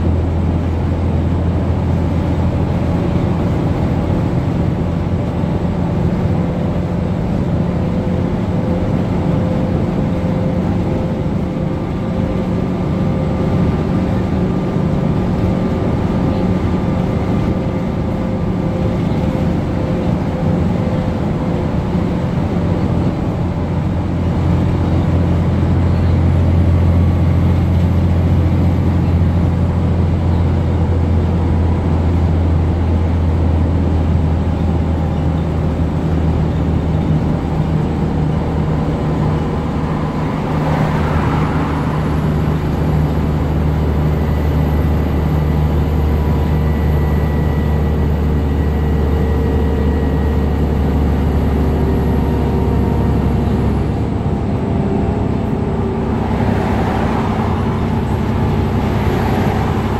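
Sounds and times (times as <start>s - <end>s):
bus engine droning: 0.0s - 59.9s
road and body noise: 0.0s - 59.9s
rushing sound: 55.2s - 59.9s.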